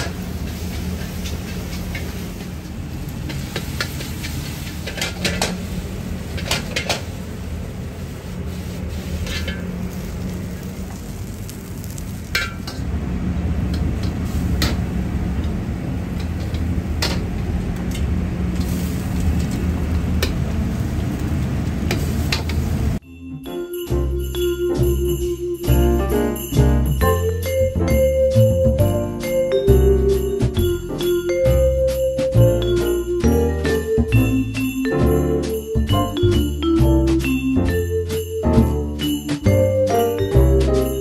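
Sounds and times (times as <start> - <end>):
food sizzling: 0.0 - 16.2
gas burner roar: 0.0 - 23.0
metal ladle scraping a wok: 9.0 - 9.7.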